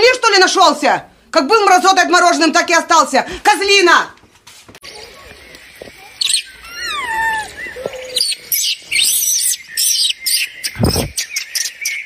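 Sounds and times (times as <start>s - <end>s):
baby monkey crying: 6.0s - 11.2s.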